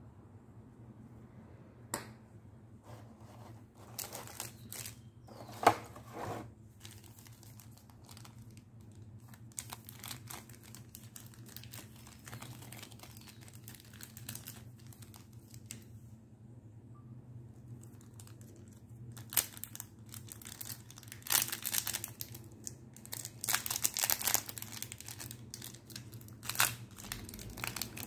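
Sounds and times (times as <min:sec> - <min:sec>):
foil packs crinkling: 0:03.8 - 0:05.8, 0:06.7 - 0:15.8, 0:17.8 - 0:28.0.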